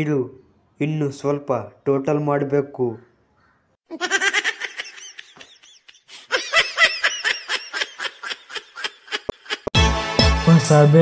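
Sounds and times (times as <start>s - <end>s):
high-pitched laughter: 3.9s - 9.8s.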